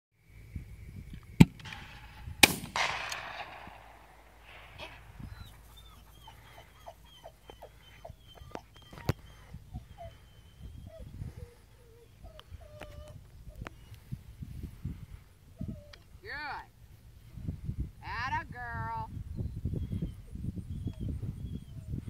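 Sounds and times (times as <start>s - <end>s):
shotgun shots with echo: 1.4s - 5.1s.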